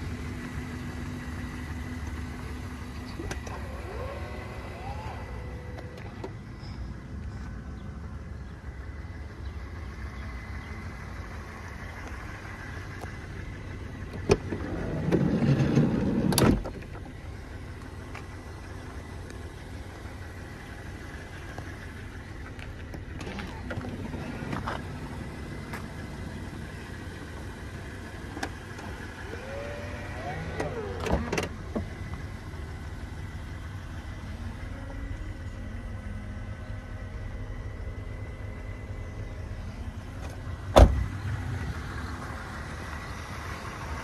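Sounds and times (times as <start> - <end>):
sliding door rolling on track: 14.6 - 16.6.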